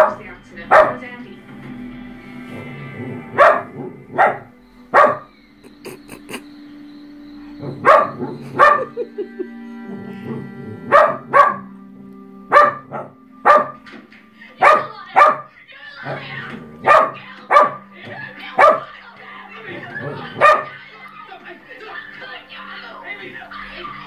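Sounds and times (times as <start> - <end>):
small dog barking: 0.0 - 1.0, 3.3 - 5.3, 7.6 - 9.1, 10.9 - 11.7, 12.5 - 13.8, 14.6 - 18.9, 20.0 - 20.8
television background music: 0.0 - 24.0.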